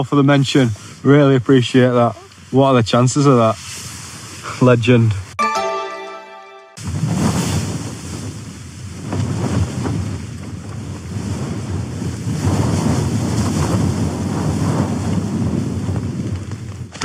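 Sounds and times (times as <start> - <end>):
wind gusting against tent: 6.8 - 17.0.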